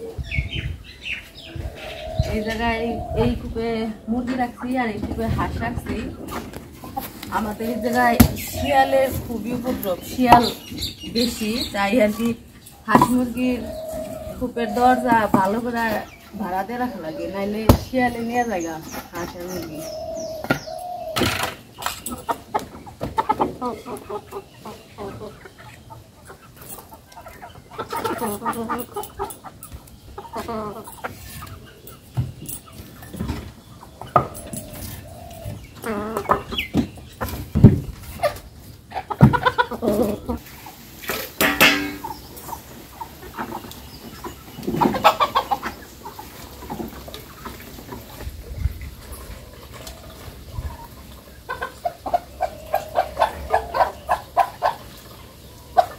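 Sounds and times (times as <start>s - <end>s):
chickens clucking: 0.0s - 55.9s
sharp knocks: 41.4s - 42.1s.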